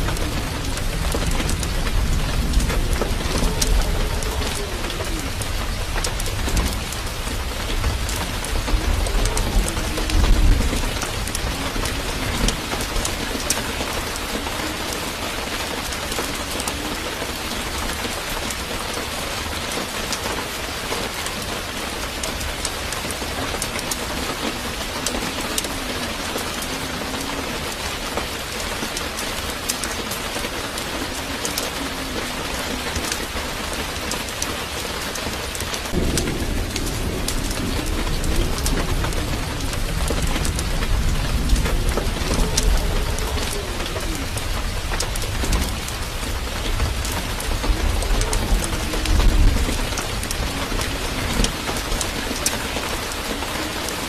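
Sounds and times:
small crackling ticks: 0.0s - 7.1s, 34.0s - 53.9s
low rumble: 0.0s - 14.3s, 35.9s - 52.0s
rain-like hiss: 0.0s - 54.0s.

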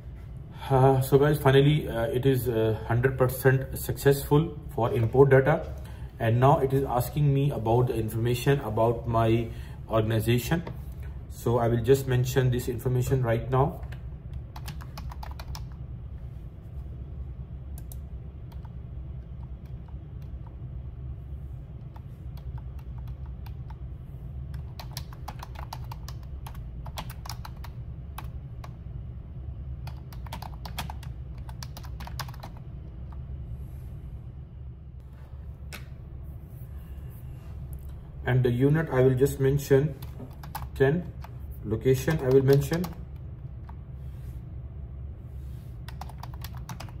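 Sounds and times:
steady low hum: 0.0s - 47.0s
typing on computer keyboard: 13.8s - 15.8s, 21.9s - 23.8s, 24.5s - 28.8s, 29.8s - 32.6s, 40.0s - 41.3s, 42.0s - 43.0s, 45.9s - 47.0s.

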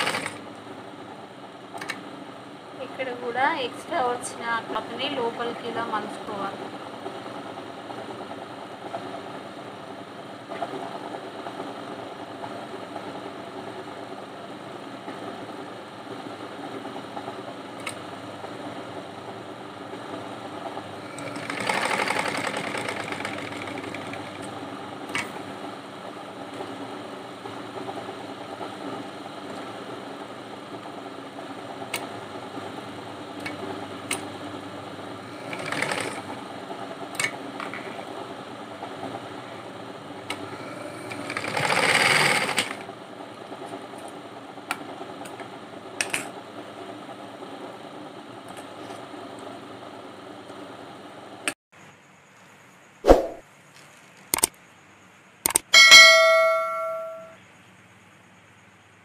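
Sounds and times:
sewing machine stitching: 0.0s - 0.4s, 21.0s - 24.5s, 35.2s - 36.4s, 40.8s - 42.9s
sharp clicks: 55.4s - 55.7s.

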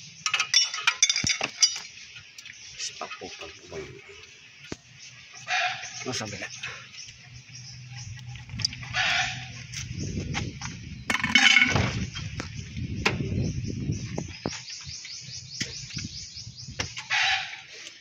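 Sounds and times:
bird chirping: 0.0s - 18.0s
knocks and clatter of hand tools: 0.2s - 2.0s, 11.1s - 12.4s.

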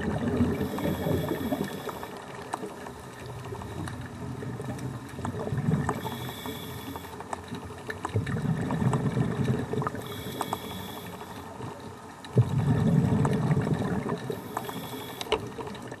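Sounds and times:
exhaled bubbles gurgling: 0.0s - 16.0s
regulator inhale hiss: 0.5s - 2.2s, 5.9s - 7.2s, 10.0s - 11.5s, 14.3s - 15.4s
faint clicks: 0.6s - 12.4s, 14.1s - 16.0s.

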